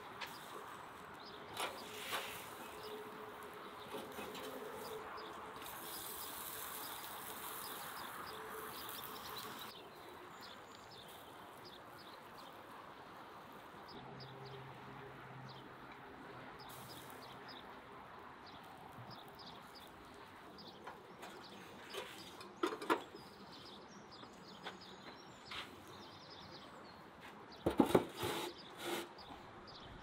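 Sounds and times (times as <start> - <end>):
small birds chirping: 0.0 - 14.7, 15.4 - 30.0
steady hiss: 5.6 - 9.7.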